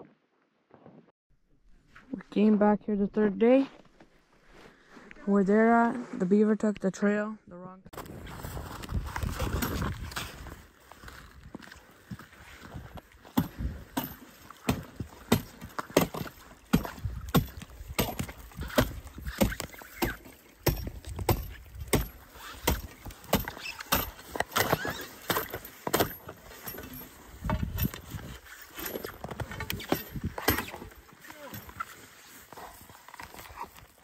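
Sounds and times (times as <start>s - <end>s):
footsteps crunching through snow: 3.6s - 6.3s, 8.0s - 20.1s, 22.1s - 34.0s.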